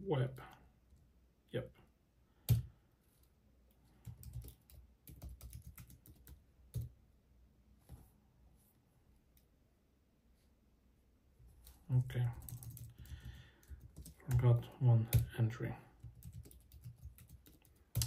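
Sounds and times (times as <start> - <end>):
computer keyboard keystrokes: 4.0 - 6.9, 12.4 - 14.2, 16.0 - 18.0.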